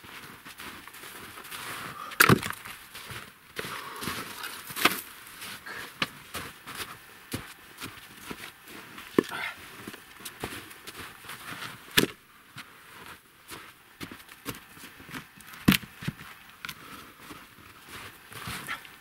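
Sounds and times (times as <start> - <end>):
footsteps crunching in snow: 0.0 - 19.0
wooden logs knocking: 2.2 - 2.6.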